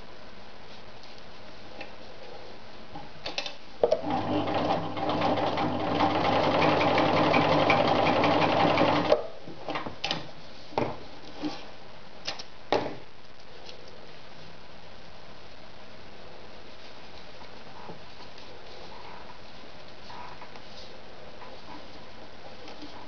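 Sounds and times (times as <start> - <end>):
sewing machine stitching: 4.0 - 9.2.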